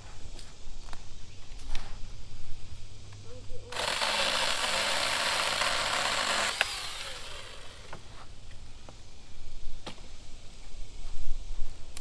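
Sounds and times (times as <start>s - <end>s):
motor winding down whine: 3.7s - 8.0s
mini chainsaw cutting brush: 3.7s - 8.2s.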